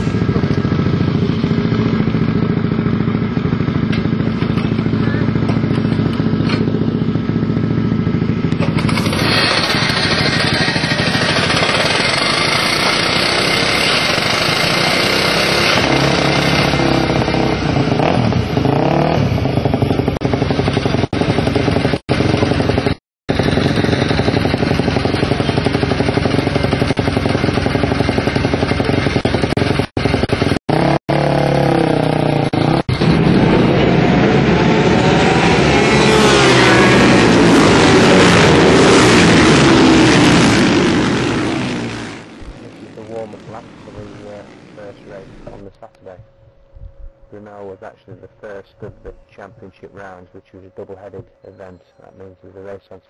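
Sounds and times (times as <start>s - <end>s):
motorbike engine revving: 0.0s - 51.4s.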